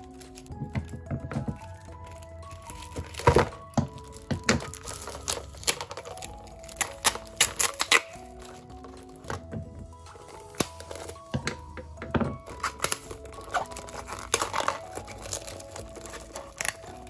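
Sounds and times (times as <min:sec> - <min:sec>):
plastic wrap crackling: 0:00.0 - 0:17.0
soft background music: 0:00.0 - 0:17.0.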